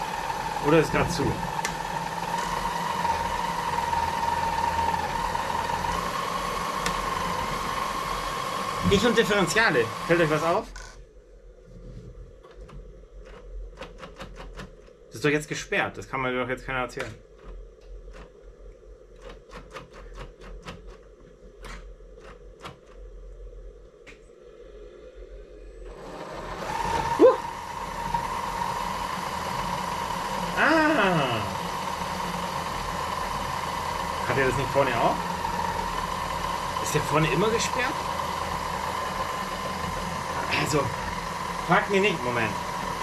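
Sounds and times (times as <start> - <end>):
toy truck mechanical whine: 0.0 - 11.0, 24.7 - 43.0
faint steady hum: 10.0 - 26.1
low hum: 21.2 - 43.0.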